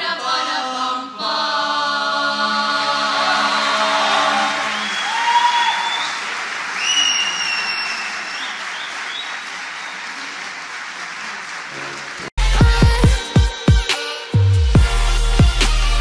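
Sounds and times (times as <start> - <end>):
choir holding a chord: 0.0 - 4.9
audience applauding: 3.6 - 12.4
audience whistling: 3.9 - 10.5.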